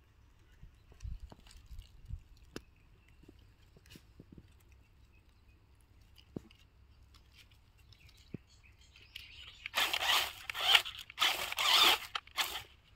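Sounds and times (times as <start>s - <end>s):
tyres crunching leaves: 5.7s - 12.9s
toy car motor buzzing: 9.7s - 12.9s.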